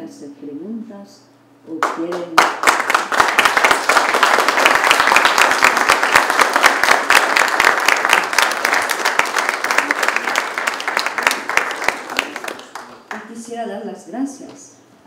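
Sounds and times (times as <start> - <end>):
audience applauding: 1.8 - 13.4.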